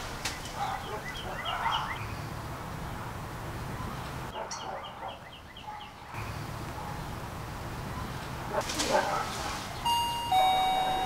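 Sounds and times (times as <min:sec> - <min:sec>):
outdoor background noise: 0:00.0 - 0:11.0
bird chirping: 0:00.3 - 0:08.5.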